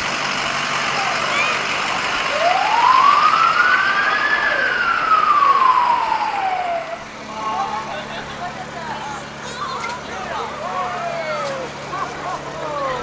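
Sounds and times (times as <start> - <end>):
ambulance siren wailing: 0.9 - 8.6.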